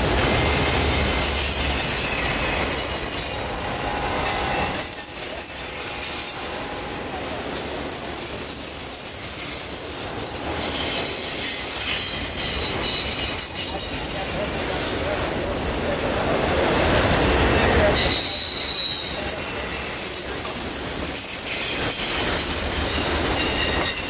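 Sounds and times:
high-pitched wheel squeal: 0.0s - 14.0s, 17.9s - 20.2s
steel wheels rumbling on rail: 0.0s - 24.0s.

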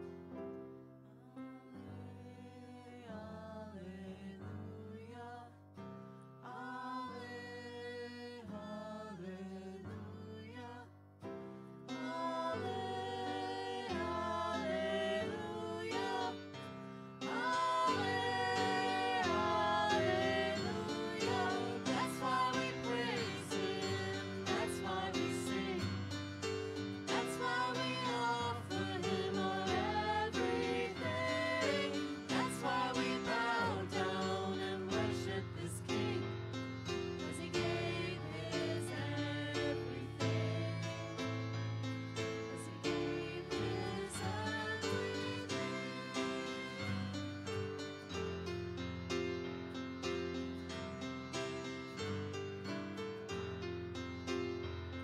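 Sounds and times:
people singing refrain: 11.9s - 26.1s, 26.8s - 36.5s, 37.2s - 41.4s, 42.6s - 47.2s
worship band playing: 12.0s - 36.2s, 37.3s - 41.4s, 42.5s - 47.7s
guitar: 16.0s - 34.3s, 43.5s - 55.0s.

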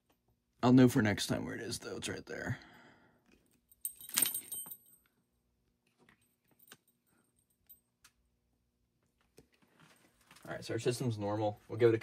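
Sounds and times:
metallic jingle: 3.7s - 5.1s.

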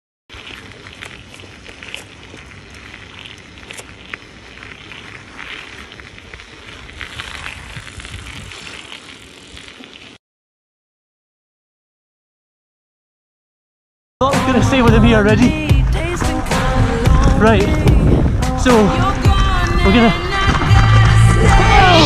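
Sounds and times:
bike tires rolling on ice: 0.3s - 10.2s, 14.3s - 22.0s.

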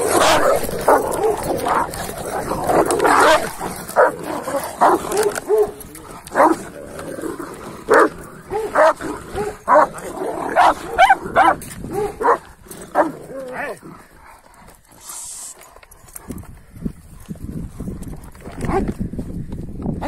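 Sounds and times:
dogs barking and growling: 0.0s - 14.9s.

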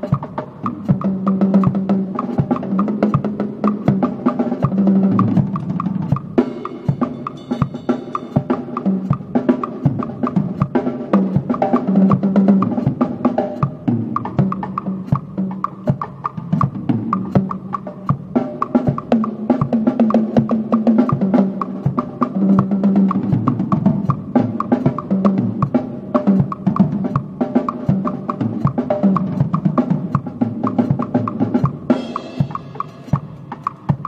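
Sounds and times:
drum kit groove: 0.0s - 34.0s
cymbal crash: 6.4s - 9.3s, 31.9s - 34.0s.

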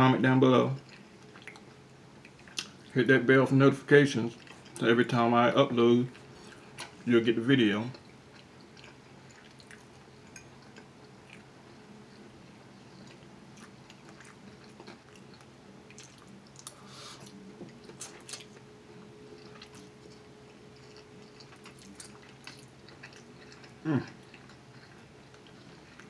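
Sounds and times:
faint steady hum: 0.0s - 26.0s
person chewing noodles: 0.8s - 2.9s, 4.3s - 4.8s, 7.9s - 26.0s.

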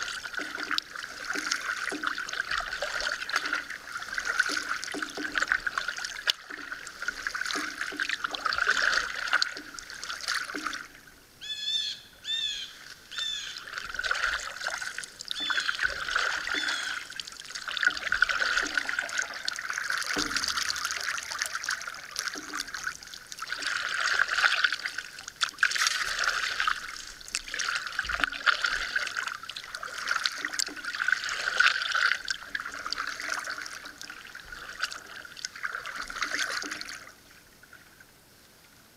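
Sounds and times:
water trickling off blades: 0.0s - 11.2s, 12.2s - 37.7s
paddle strokes splashing water: 0.0s - 38.0s
bird chirping: 11.4s - 13.6s.

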